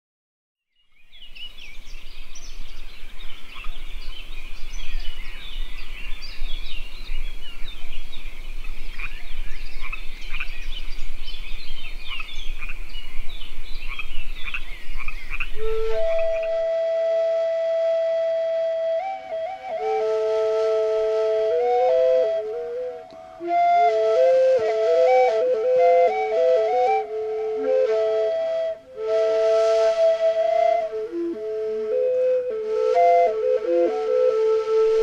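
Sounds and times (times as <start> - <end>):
flute long held note: 15.6 - 35.0.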